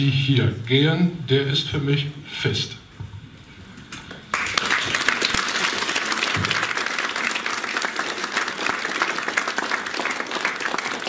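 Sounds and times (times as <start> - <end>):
audience applause: 4.3 - 11.0.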